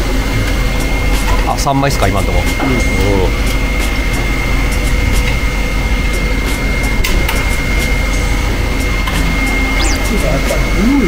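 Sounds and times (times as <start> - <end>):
workshop machine hum with whine: 9.8 - 10.1.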